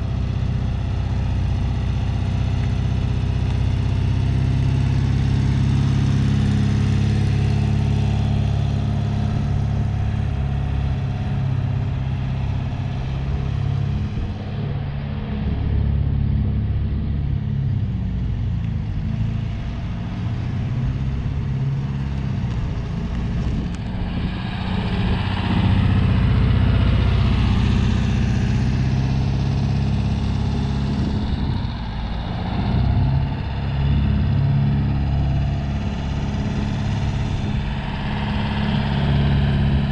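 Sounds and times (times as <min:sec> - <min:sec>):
van engine running: 0:00.0 - 0:39.9.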